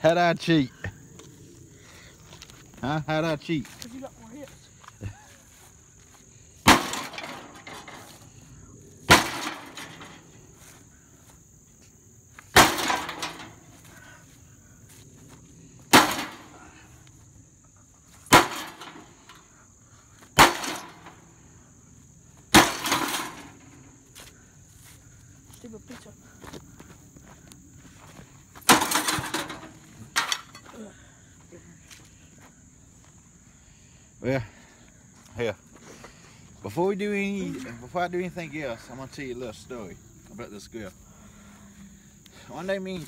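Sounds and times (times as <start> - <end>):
sledgehammer banging on metal: 6.6 - 8.1, 9.1 - 10.2, 12.5 - 13.7, 15.9 - 16.6, 18.3 - 19.1, 20.4 - 21.2, 22.5 - 23.6, 28.6 - 30.6
metal rattle: 6.7 - 8.4, 9.1 - 10.4, 12.5 - 13.9, 15.9 - 16.6, 18.3 - 19.5, 20.4 - 21.3, 22.5 - 23.8, 28.6 - 30.7.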